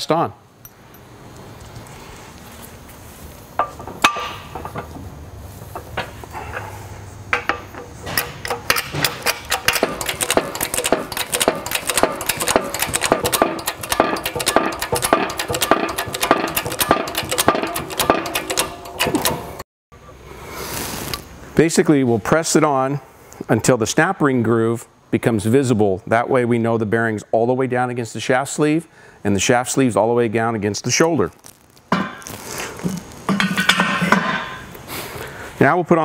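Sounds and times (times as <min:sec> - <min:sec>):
jack pumping metallic clicks: 0:03.6 - 0:06.7, 0:07.3 - 0:19.6
metal clanks: 0:03.6 - 0:19.6, 0:31.9 - 0:32.4, 0:33.3 - 0:34.7.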